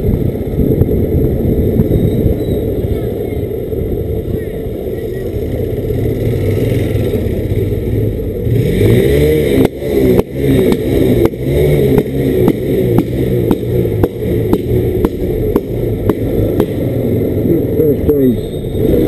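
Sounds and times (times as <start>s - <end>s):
wind noise: 0.0s - 5.4s
motorcycle engine running: 0.0s - 19.0s.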